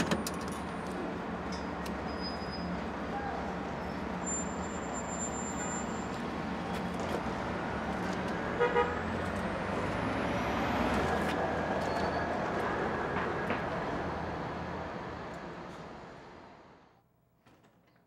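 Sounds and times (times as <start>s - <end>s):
city street traffic: 0.0s - 17.0s
car horn tooting: 8.6s - 9.0s.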